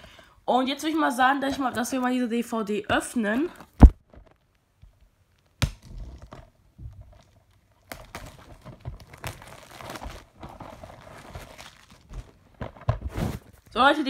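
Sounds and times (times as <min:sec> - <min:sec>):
plastic crinkling and rustling: 0:03.4 - 0:13.8.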